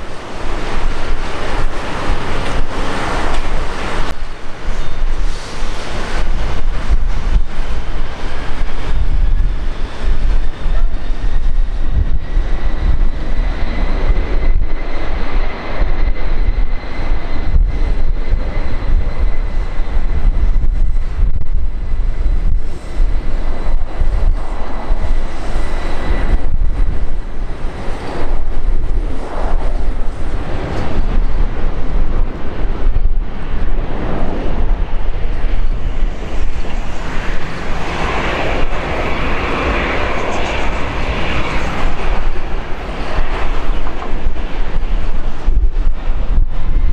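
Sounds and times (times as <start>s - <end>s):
high jet whine: 0.0s - 46.9s
jet taking off: 0.0s - 46.9s.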